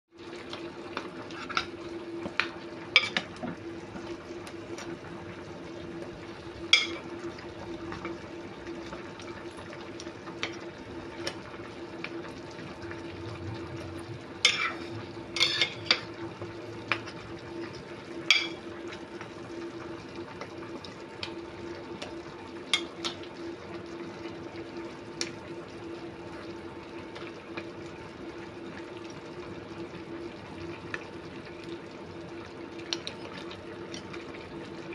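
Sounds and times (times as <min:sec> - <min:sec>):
sauce bubbling in a pot: 0:00.1 - 0:34.9
low steady hum: 0:00.2 - 0:34.9
utensil clinking against a pot: 0:06.7 - 0:07.0, 0:18.3 - 0:18.6.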